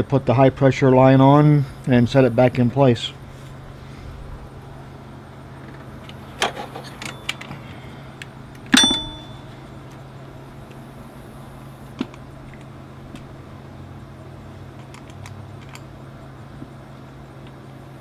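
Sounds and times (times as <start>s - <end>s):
metal clicks and clunks: 5.6s - 7.6s, 8.2s - 9.5s
ringing metallic clank: 6.8s - 7.5s, 8.7s - 9.6s.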